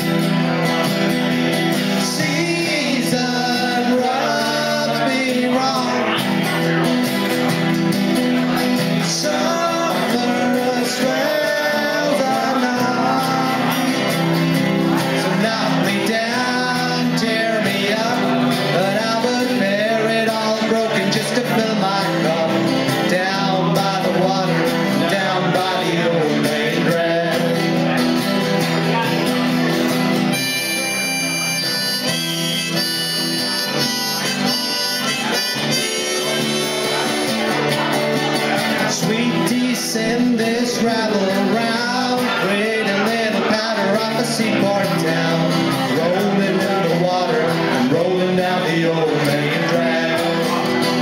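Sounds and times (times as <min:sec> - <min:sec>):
acoustic guitars strummed: 0:00.0 - 0:51.0
man singing: 0:01.3 - 0:29.5, 0:30.6 - 0:51.0
harmonica playing lead: 0:30.0 - 0:37.6.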